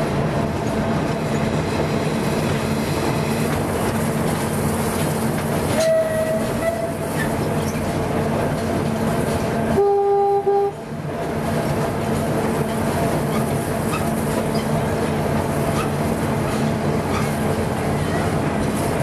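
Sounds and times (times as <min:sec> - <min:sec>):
train engine hum: 0:00.0 - 0:19.0
wheels rumbling on rails: 0:00.0 - 0:19.0
train horn blast: 0:05.7 - 0:07.1, 0:09.7 - 0:10.8.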